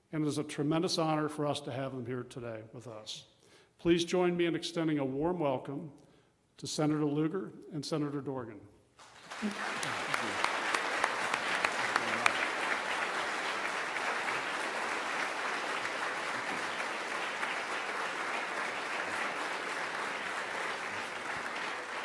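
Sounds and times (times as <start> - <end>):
audience applauding: 9.0 - 22.0.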